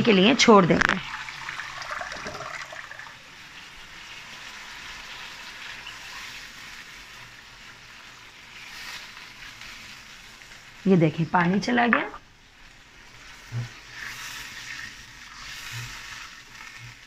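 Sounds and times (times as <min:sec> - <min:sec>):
steady hiss from pan: 0:00.1 - 0:17.0
water poured into hot wok: 0:00.8 - 0:10.8.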